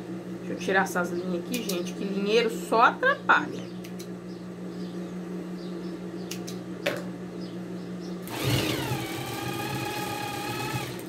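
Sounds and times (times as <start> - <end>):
sewing machine motor humming: 8.2 - 11.0
sewing machine stitching whine: 8.2 - 11.0.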